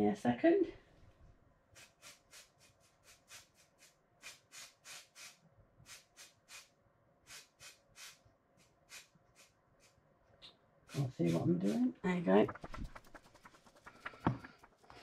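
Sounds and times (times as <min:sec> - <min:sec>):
aerosol can short hisses: 0:01.8 - 0:10.0.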